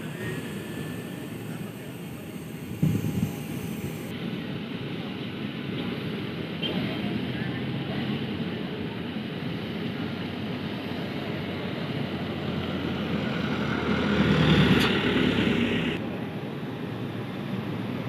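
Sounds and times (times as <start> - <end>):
bus driving past: 11.5 - 16.0.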